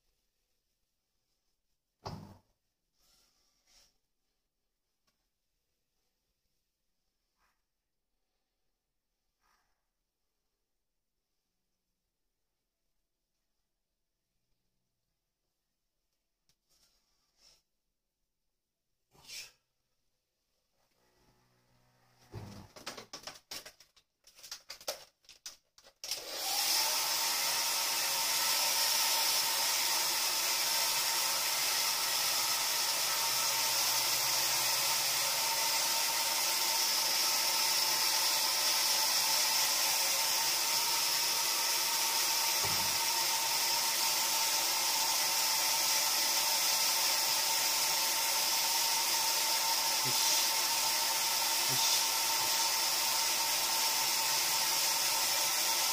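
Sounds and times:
hair dryer running: 26.0s - 55.9s.

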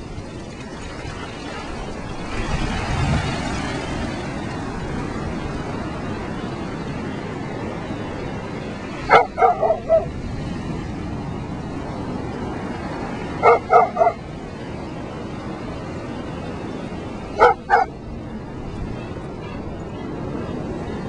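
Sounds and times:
surf washing: 0.0s - 21.0s
dog barking: 9.0s - 10.1s, 13.4s - 14.2s, 17.3s - 18.0s.

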